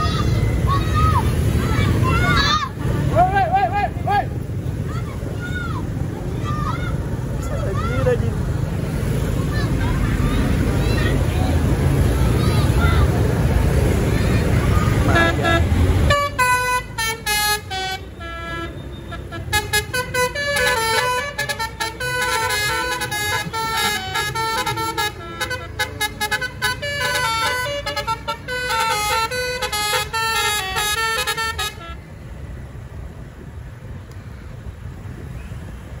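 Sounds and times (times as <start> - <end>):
bus horn playing a tune: 15.0 - 32.1.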